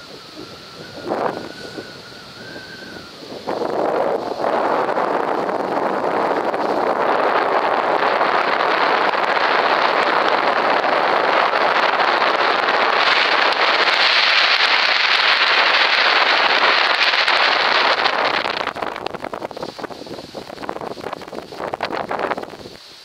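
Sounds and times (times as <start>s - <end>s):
wind blowing across microphone: 0.0s - 23.0s.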